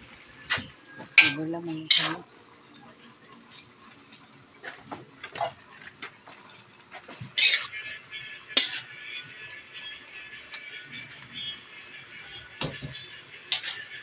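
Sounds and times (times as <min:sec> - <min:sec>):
metal spatula scraping a wok: 0:00.4 - 0:02.3, 0:05.3 - 0:05.8, 0:07.0 - 0:11.5, 0:12.4 - 0:14.0.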